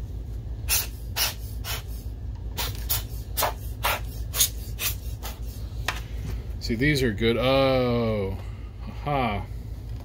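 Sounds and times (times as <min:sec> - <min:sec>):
hand air blower puffs: 0:00.6 - 0:06.0.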